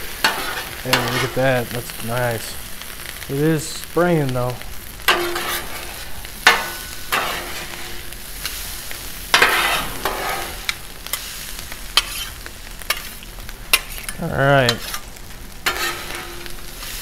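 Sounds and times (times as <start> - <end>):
food sizzling on griddle: 0.0 - 17.0
metal spatulas scraping: 0.2 - 1.4, 5.1 - 8.0, 9.3 - 10.8, 12.0 - 16.7.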